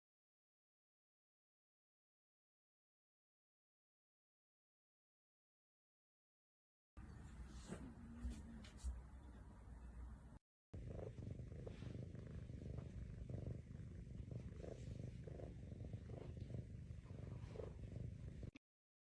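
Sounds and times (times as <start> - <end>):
cat purring: 10.8 - 18.6.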